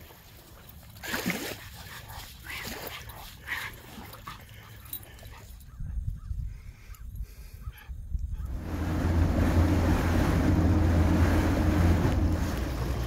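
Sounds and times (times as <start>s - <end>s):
wind on microphone: 5.7s - 13.0s.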